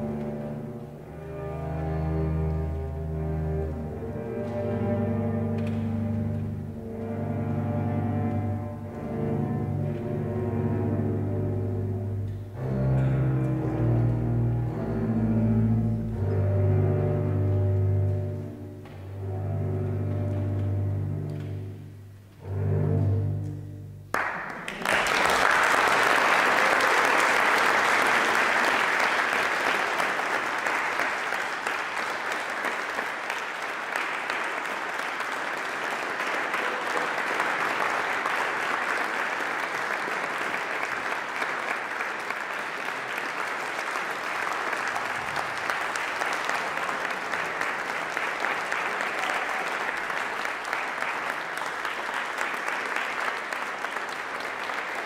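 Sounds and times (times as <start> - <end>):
audience applauding: 24.1 - 55.0.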